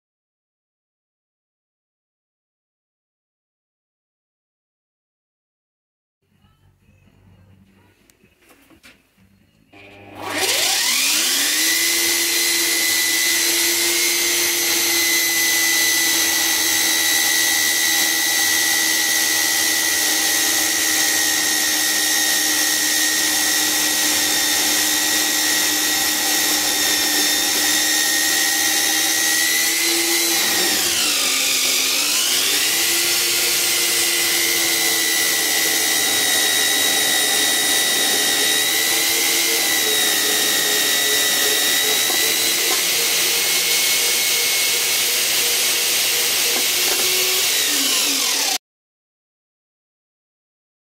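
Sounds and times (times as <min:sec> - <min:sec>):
bandsaw whining cutting steel: 0:09.8 - 0:48.6.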